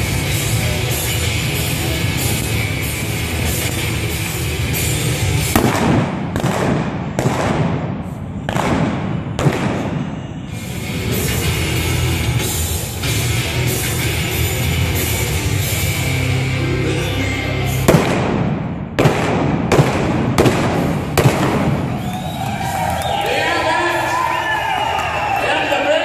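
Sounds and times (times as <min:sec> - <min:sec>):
loud rock music: 0:00.0 - 0:07.1, 0:09.2 - 0:19.0
rifle shots with echo: 0:05.6 - 0:10.2, 0:17.9 - 0:21.9.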